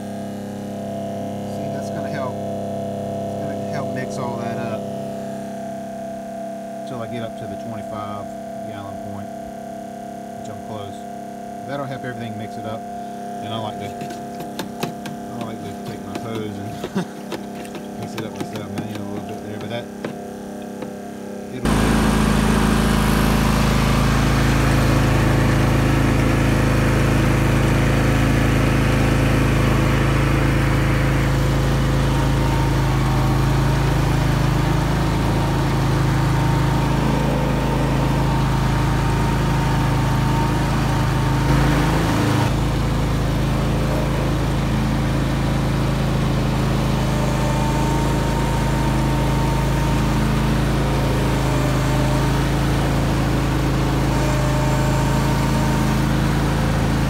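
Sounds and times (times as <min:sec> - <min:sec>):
riding mower engine running: 0:00.0 - 0:57.0.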